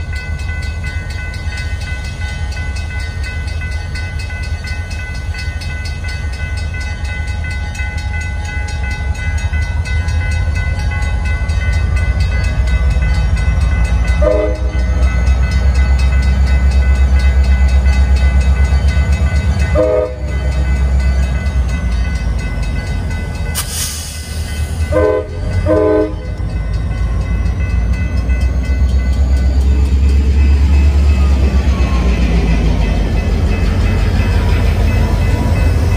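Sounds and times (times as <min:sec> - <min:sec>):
diesel locomotive engine rumbling: 0:00.0 - 0:35.9
train horn blasts: 0:14.2 - 0:14.9, 0:19.7 - 0:20.4, 0:24.8 - 0:26.4
brief hiss: 0:23.6 - 0:24.8.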